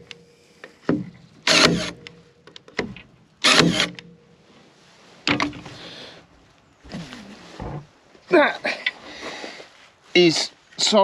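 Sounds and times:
stapler firing shots: 0:01.5 - 0:02.0, 0:03.5 - 0:04.0.

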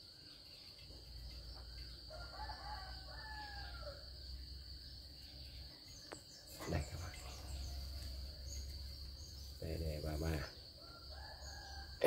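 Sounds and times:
cricket trill: 0:00.0 - 0:12.0
rooster crowing: 0:02.0 - 0:04.2, 0:10.8 - 0:12.0.

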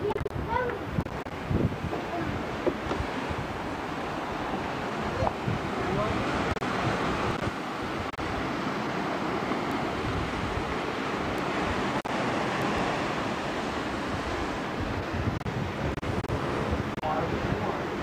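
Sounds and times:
surf breaking on rocky shore: 0:00.0 - 0:18.0
wind buffeting microphone: 0:00.0 - 0:18.0.

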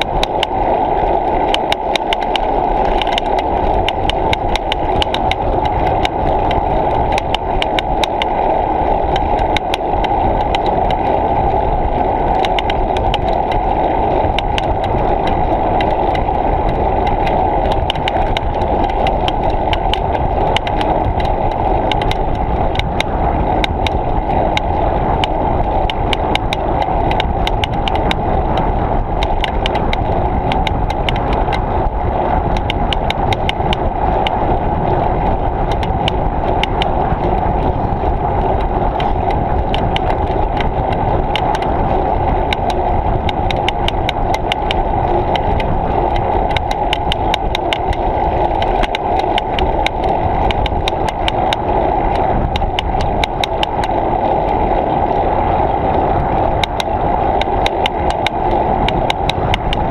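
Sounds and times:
bicycle rolling noise: 0:00.0 - 0:59.9
small clicks and rattles: 0:00.0 - 0:59.9
wind noise: 0:00.0 - 0:59.9.

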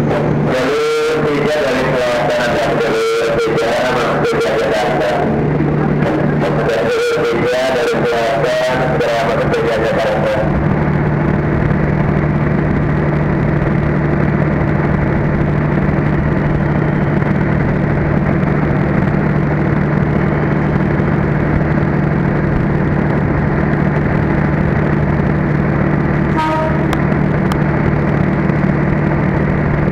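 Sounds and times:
mechanical drone with low hum: 0:00.0 - 0:29.9.

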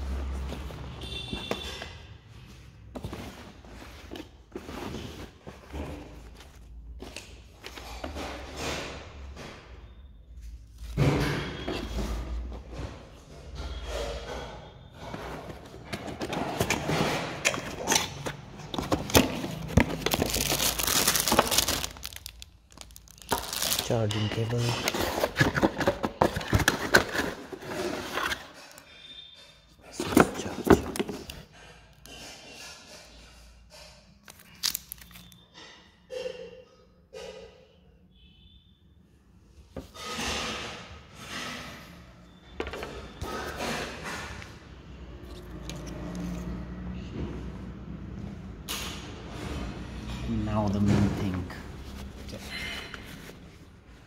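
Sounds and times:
cardboard packaging handled: 0:15.2 - 0:28.8, 0:29.9 - 0:31.4
paper rustling: 0:18.6 - 0:24.0.

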